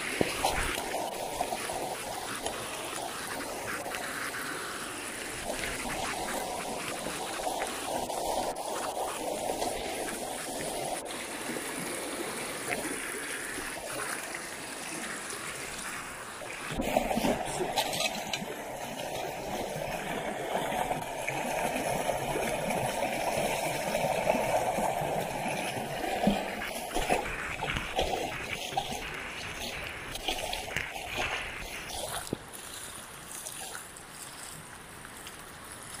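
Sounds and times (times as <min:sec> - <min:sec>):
water rushing along street: 0:00.0 - 0:36.0
feet splashing through water: 0:25.1 - 0:36.0.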